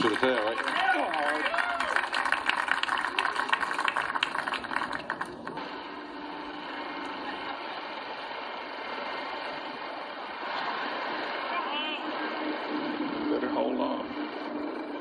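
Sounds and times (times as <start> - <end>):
crowd applauding: 0.0 - 5.6
outdoor background hush: 0.0 - 15.0.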